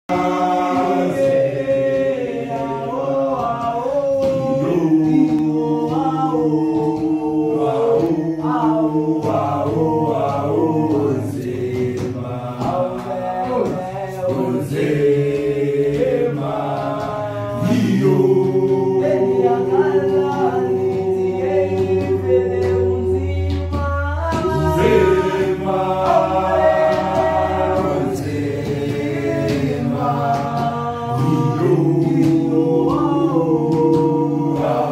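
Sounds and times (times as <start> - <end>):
men singing a cappella: 0.0 - 34.9
low held bass voice: 17.1 - 30.1.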